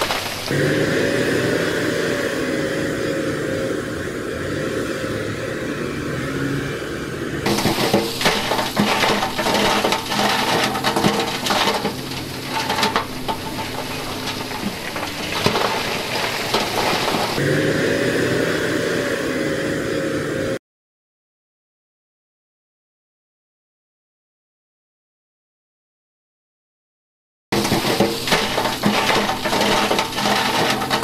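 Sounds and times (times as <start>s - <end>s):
rocks clattering down into water: 0.0s - 0.5s, 7.5s - 17.4s, 27.6s - 31.0s
diesel truck engine running: 0.0s - 20.6s.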